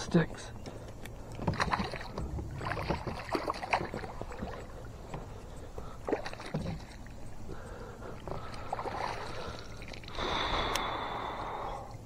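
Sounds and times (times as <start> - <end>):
water splashing: 1.4 - 10.8.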